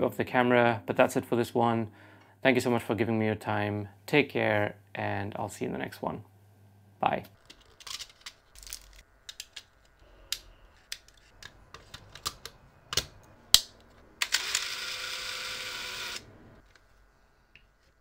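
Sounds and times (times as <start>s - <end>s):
camera motor whirring: 14.2s - 16.3s.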